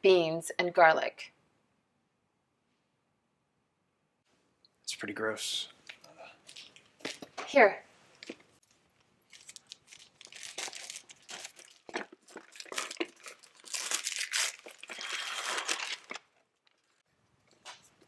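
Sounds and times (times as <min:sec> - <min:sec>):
wrapping paper tearing and crumpling: 0:09.3 - 0:17.0.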